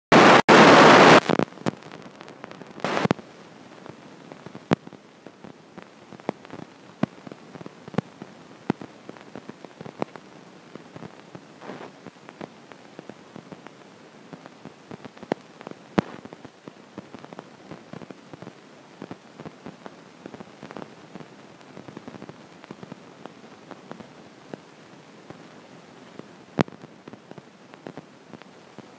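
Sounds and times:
loud hiss bursts: 0.1 - 1.3
faint steady hiss: 0.1 - 28.9.

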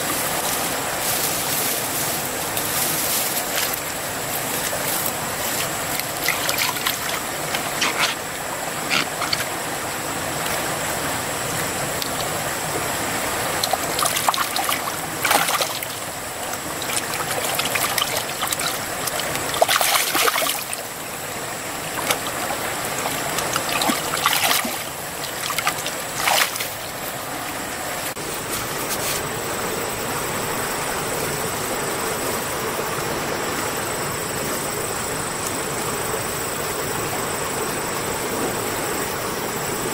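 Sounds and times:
river water flowing: 0.0 - 39.9
hands splashing in muddy water: 22.0 - 26.8.

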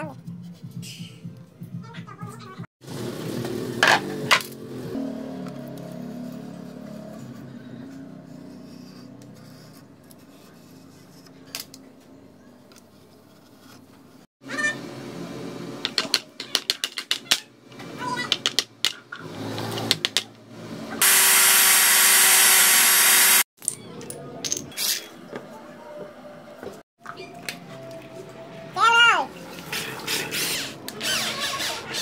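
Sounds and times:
angle grinder running: 21.0 - 23.5.

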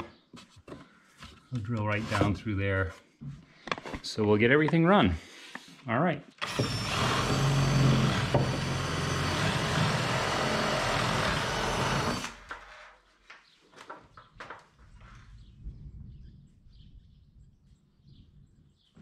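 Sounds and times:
cordless drill boring through plywood: 6.4 - 13.0.

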